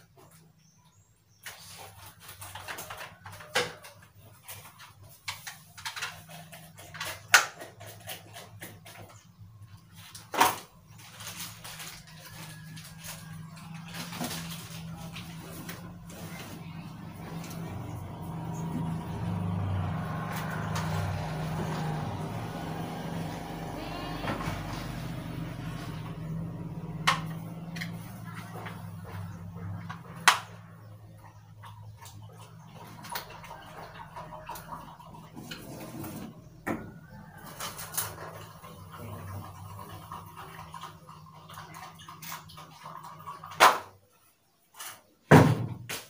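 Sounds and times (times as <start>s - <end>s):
motorcycle engine passing: 11.4s - 41.5s.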